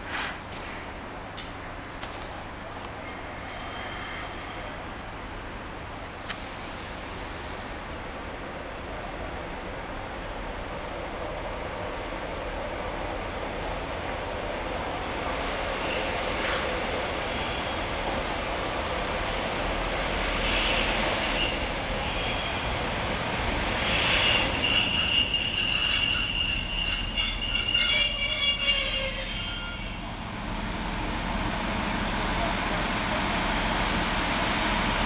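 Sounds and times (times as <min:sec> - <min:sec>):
train brakes squealing: 0:03.0 - 0:05.1, 0:15.3 - 0:18.6, 0:19.2 - 0:30.2.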